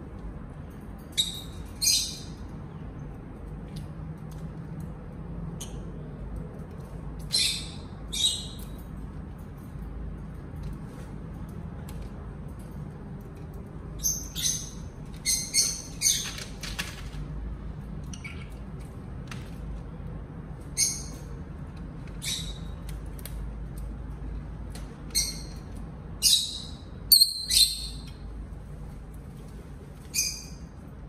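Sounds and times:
lovebirds squawking and chirping: 14.0s - 16.5s, 22.2s - 22.8s.

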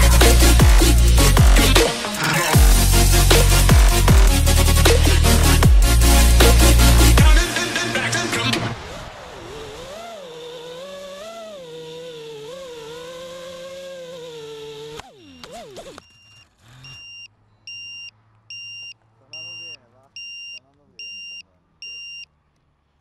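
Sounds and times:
drone motors whining: 0.0s - 19.7s
short high electronic beeps: 16.0s - 22.3s.

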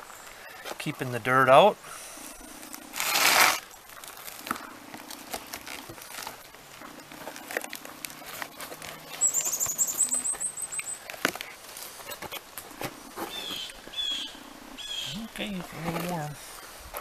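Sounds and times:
bark crackling and rustling: 0.0s - 17.0s
bird singing high trill: 9.0s - 11.1s, 13.3s - 15.2s.

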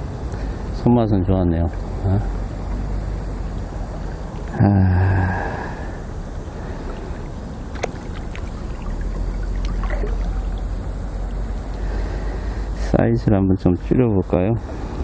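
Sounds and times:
river current rushing: 5.4s - 12.7s.

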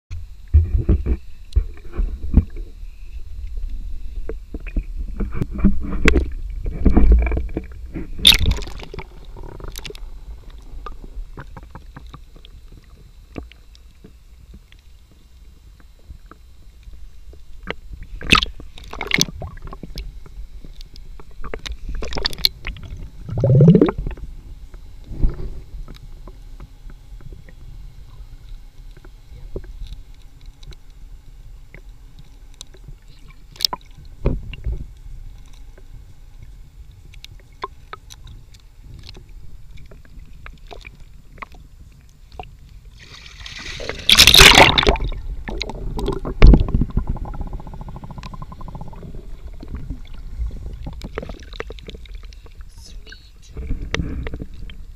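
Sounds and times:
muffled underwater rumble: 0.1s - 54.9s
splashing and bubbles: 6.0s - 10.0s, 18.1s - 20.0s, 21.4s - 24.2s, 39.9s - 41.6s, 42.3s - 52.7s.

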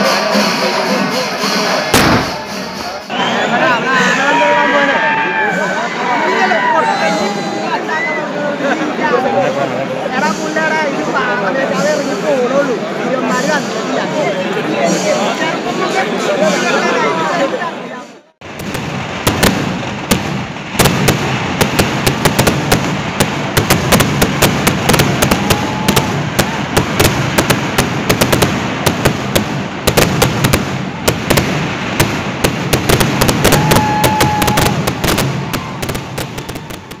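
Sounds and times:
fireworks cracking and banging: 0.0s - 3.1s, 18.4s - 37.0s
short whistling tone: 2.2s - 3.6s.

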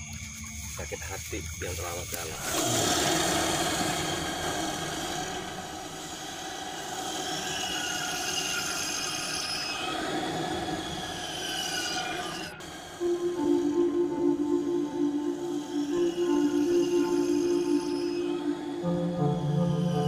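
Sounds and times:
soft ambient music: 0.0s - 2.6s, 12.5s - 20.0s
metallic screeching drone: 0.0s - 20.0s.

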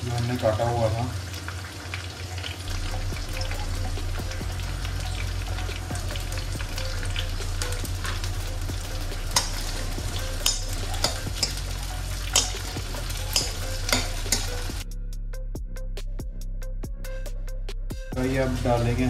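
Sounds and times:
onions sizzling in oil: 0.0s - 14.8s
low hum: 2.7s - 15.7s
ladle scraping and clinking pan: 9.4s - 14.7s.

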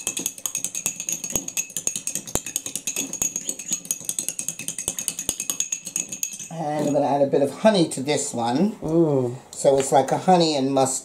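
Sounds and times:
metal spoon clinking glass bowl: 0.0s - 7.0s.

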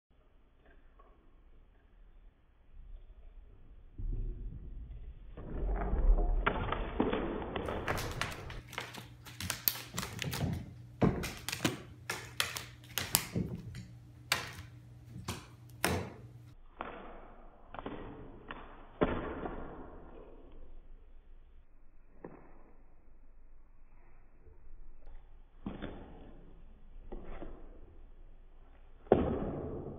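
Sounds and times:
cat paws thumping on wooden floor: 7.7s - 8.6s.

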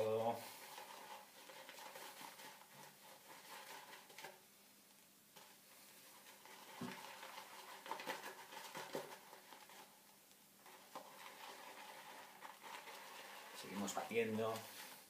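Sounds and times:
shaving brush swishing lather: 10.9s - 15.0s.

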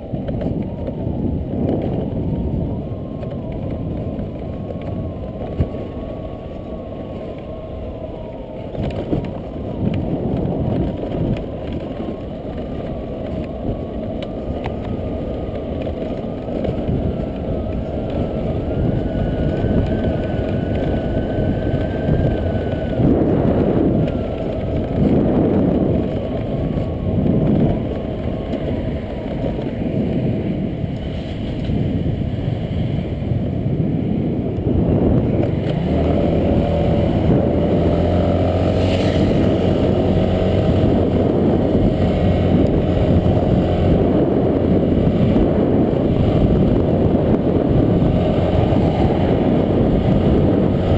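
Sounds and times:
scooter engine whine: 0.0s - 50.9s
wind and road noise: 0.0s - 50.9s.

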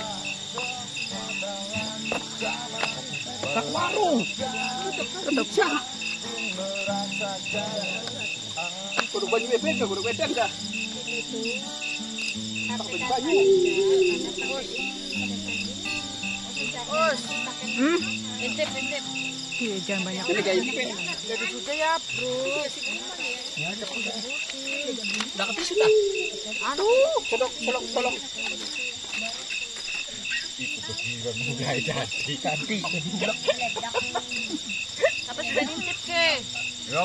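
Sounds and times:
acoustic guitar: 0.0s - 37.0s
crickets chirping: 0.0s - 37.0s
wavering voice-like sounds: 13.0s - 16.3s, 25.6s - 27.3s.

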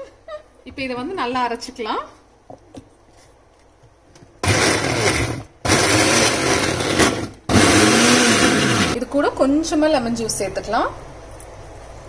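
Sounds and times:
mixer grinder grinding: 4.4s - 9.0s.

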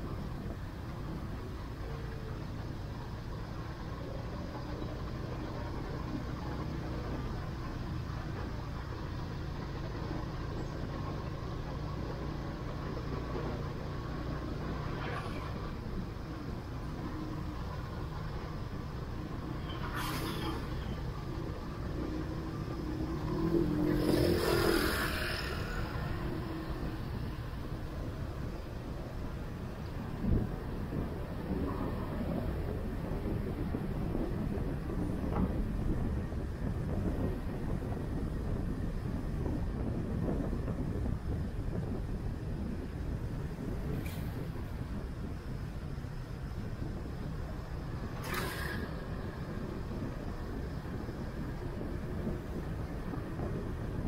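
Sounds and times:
road and wind rumble: 0.0s - 54.0s.

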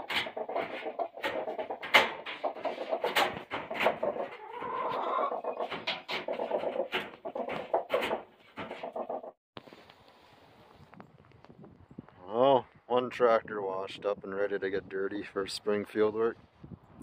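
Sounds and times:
hens clucking: 0.0s - 9.4s.

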